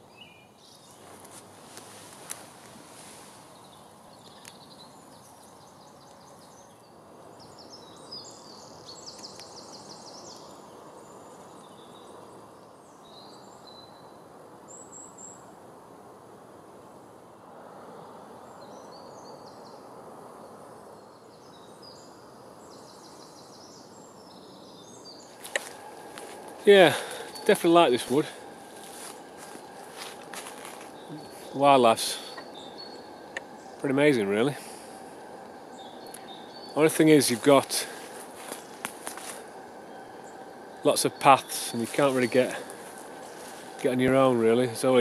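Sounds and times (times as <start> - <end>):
songbirds trilling: 0.0 - 45.0
low background hum: 21.9 - 45.0.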